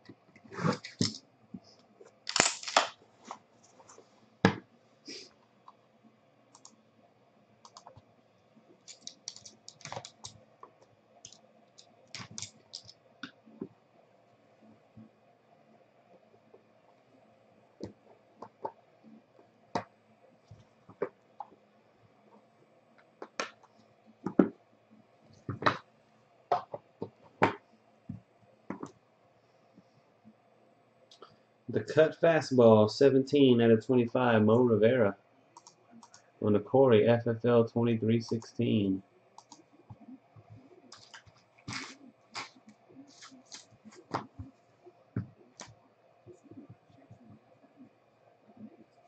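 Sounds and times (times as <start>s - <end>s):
cards swishing and scraping: 0.5s - 1.2s, 41.0s - 44.4s
cards tapping and scraping: 8.8s - 10.8s, 12.1s - 13.0s, 40.9s - 44.5s.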